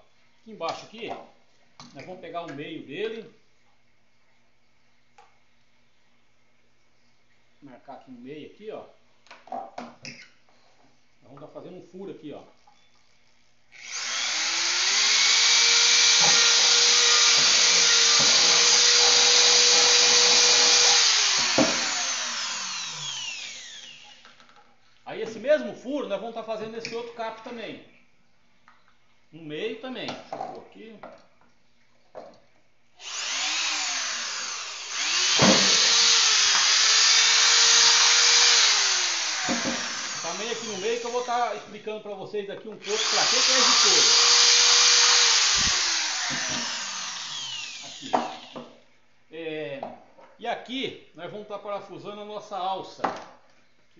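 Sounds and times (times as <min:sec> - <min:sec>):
electric drill whining: 0:13.7 - 0:24.4, 0:33.0 - 0:41.8, 0:42.8 - 0:48.7.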